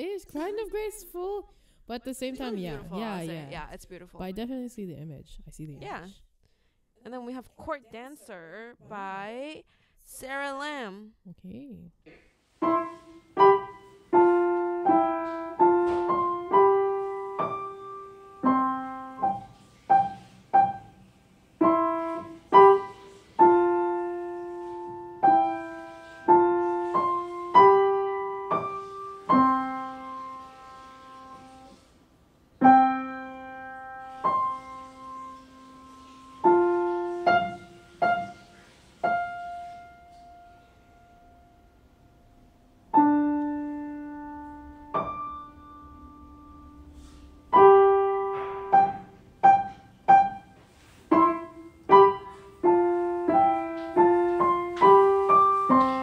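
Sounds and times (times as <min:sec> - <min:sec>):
solo piano melody: 0:12.6 - 0:31.9, 0:32.6 - 0:56.0.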